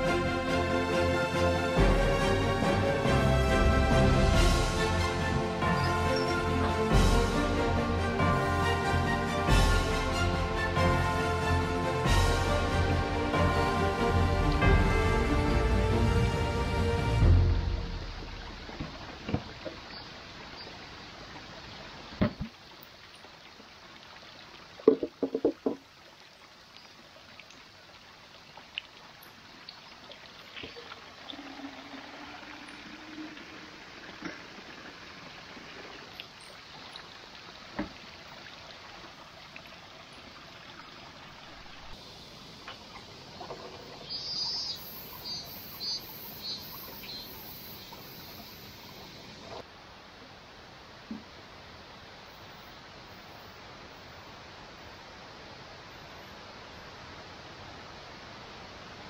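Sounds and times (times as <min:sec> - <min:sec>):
bird chirping: 0:05.7 - 0:06.5, 0:43.7 - 0:49.2
water trickling: 0:12.8 - 0:49.7
knocks: 0:24.9 - 0:25.8.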